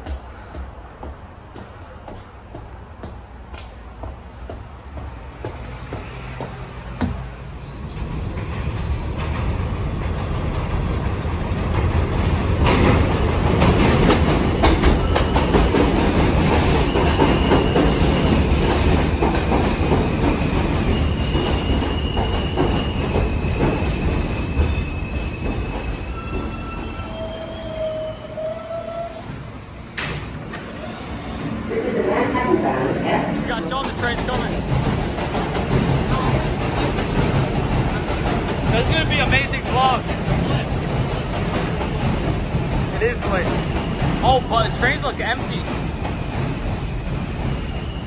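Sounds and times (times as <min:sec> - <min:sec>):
subway train rumble and clatter: 0:00.0 - 0:48.0
wheel squeals: 0:20.8 - 0:29.4.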